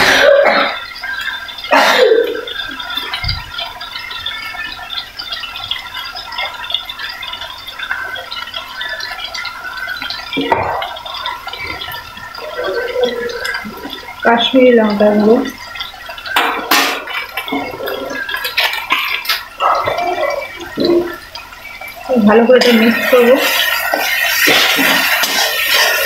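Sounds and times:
spices sizzling in hot oil: 0:13.2 - 0:26.0.

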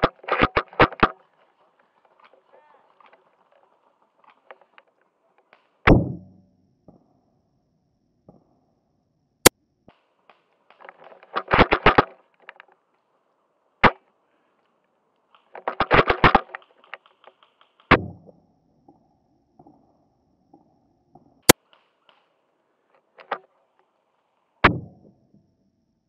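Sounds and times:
airsoft gun shots: 0:05.9 - 0:06.4.

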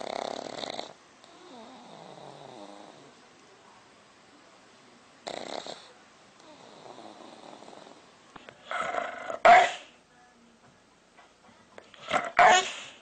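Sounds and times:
dog barking: 0:08.7 - 0:09.9, 0:12.0 - 0:13.0.

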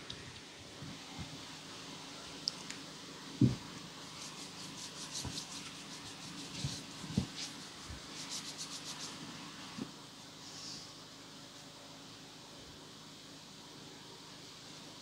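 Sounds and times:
thump: 0:03.4 - 0:03.6
rustling at altar: 0:04.1 - 0:09.2.

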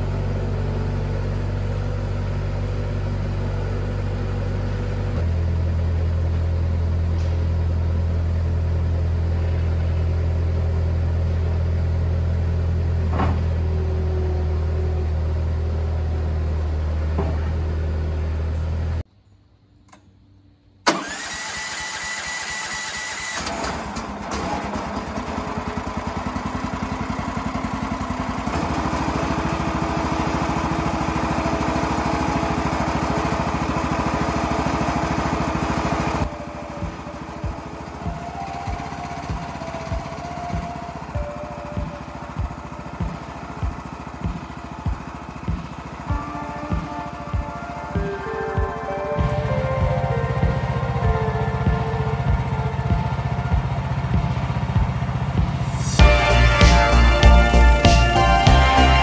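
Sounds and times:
small engine starting and running: 0:00.0 - 0:19.0, 0:20.8 - 0:59.0
loader engine running: 0:00.0 - 0:19.1, 0:19.9 - 0:59.0
electric starter whining: 0:20.8 - 0:59.0.

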